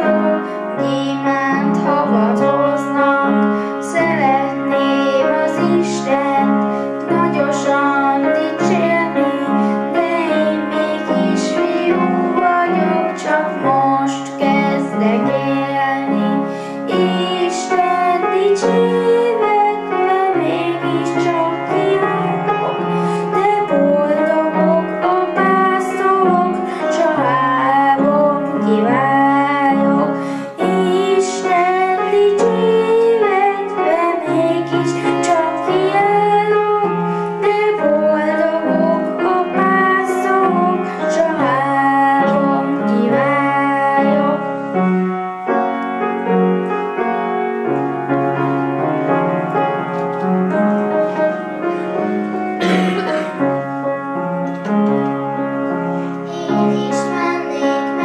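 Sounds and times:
children singing into microphones: 0:00.0 - 0:44.6, 0:56.0 - 0:58.0
piano accompaniment: 0:00.0 - 0:58.0.

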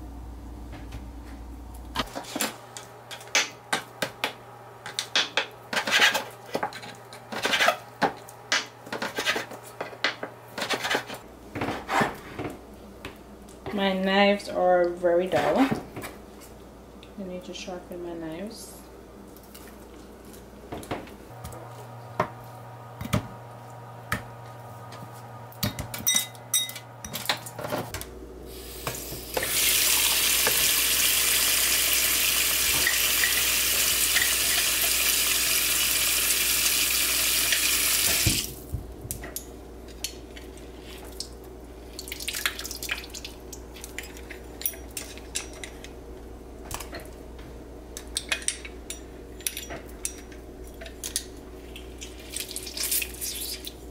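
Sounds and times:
tap water running into sink: 0:29.4 - 0:38.5.

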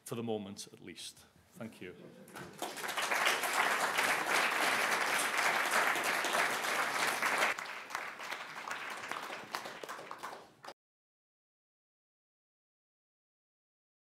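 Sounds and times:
audience applauding: 0:02.3 - 0:10.8.

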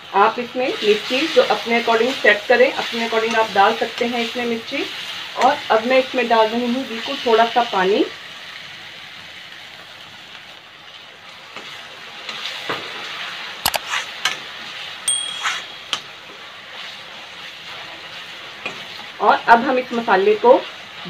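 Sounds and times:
masala sizzling in an iron pan: 0:00.0 - 0:21.0
spoon clinking against pan: 0:15.1 - 0:16.1
steel spoon stirring and scraping: 0:15.1 - 0:16.1.

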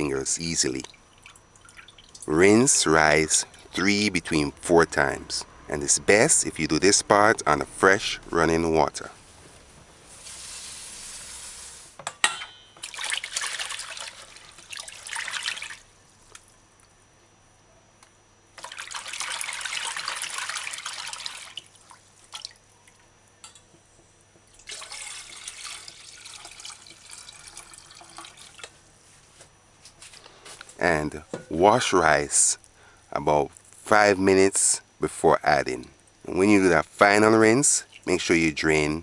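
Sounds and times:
water poured into metal bowl: 0:12.8 - 0:15.8, 0:18.6 - 0:21.7, 0:24.6 - 0:28.7.

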